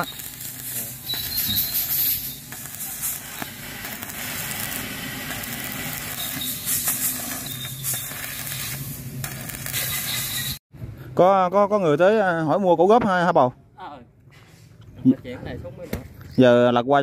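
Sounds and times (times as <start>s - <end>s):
welding arc hissing: 0.0s - 10.6s.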